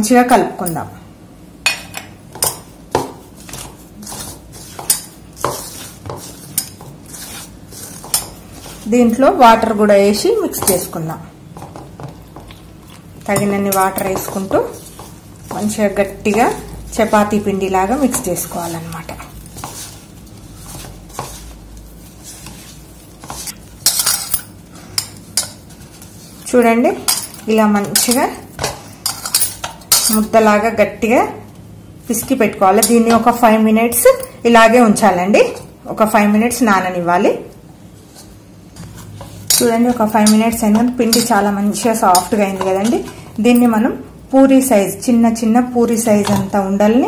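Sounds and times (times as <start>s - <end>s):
dough squishing by hand: 2.2s - 23.9s
scraping rustle of flour: 3.3s - 9.0s, 19.5s - 23.6s.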